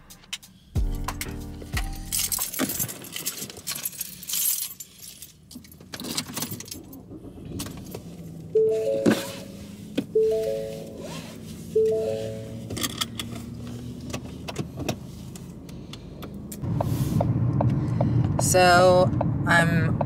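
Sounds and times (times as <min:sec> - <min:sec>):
background music: 0:00.0 - 0:02.5, 0:11.8 - 0:12.7
keys jangling: 0:01.8 - 0:06.9.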